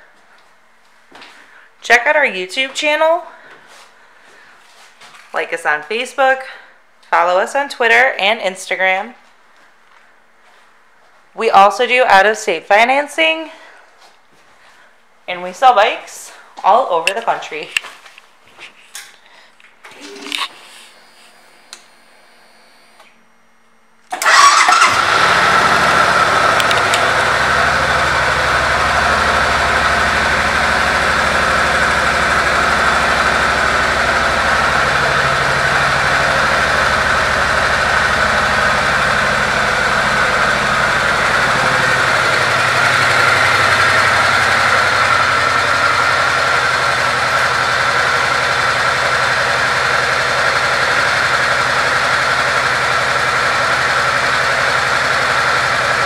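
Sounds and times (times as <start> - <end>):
motorcycle engine starting and idling: 19.9 - 23.2, 24.1 - 56.0.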